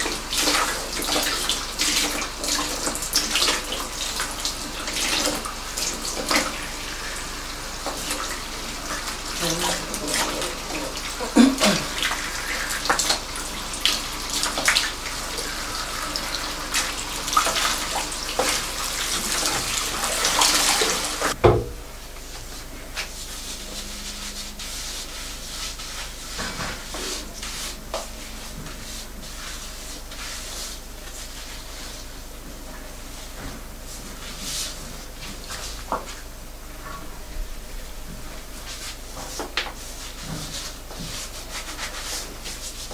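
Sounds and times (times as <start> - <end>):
hands working shampoo lather: 0.0 - 21.4, 22.1 - 36.3, 38.1 - 42.9
shower head spraying water on hair: 0.0 - 21.4, 22.2 - 32.2, 38.4 - 42.9
water splashing: 0.0 - 21.4.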